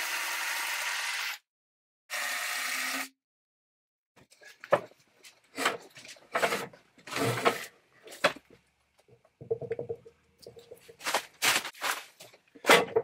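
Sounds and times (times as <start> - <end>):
log scraping and knocking on boards: 5.5 - 8.6, 9.4 - 13.0.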